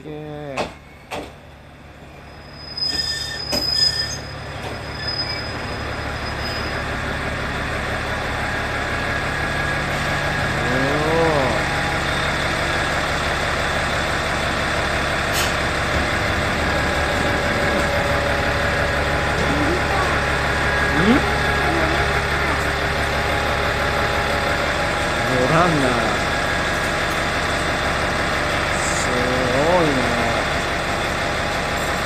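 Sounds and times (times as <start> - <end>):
railcar engine and running gear: 0.0 - 32.0
high squeal: 2.0 - 7.1.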